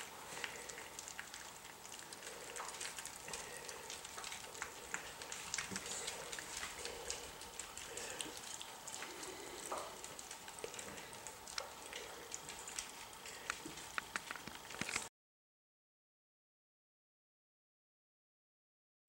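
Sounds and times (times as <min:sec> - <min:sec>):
puppies lapping food: 0:00.0 - 0:15.1.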